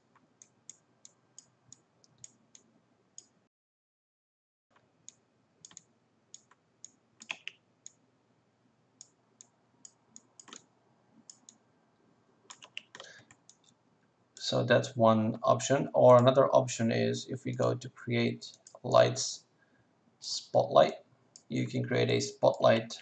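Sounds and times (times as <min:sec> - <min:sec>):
computer mouse clicks: 0:05.0 - 0:08.0, 0:09.0 - 0:10.7, 0:11.3 - 0:11.6, 0:12.5 - 0:13.7.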